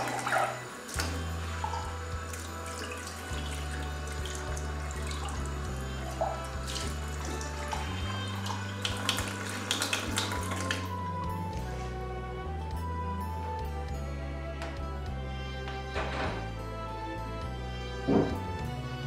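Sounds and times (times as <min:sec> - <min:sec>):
soft background music: 0:00.0 - 0:19.0
tap running into sink: 0:18.1 - 0:18.4.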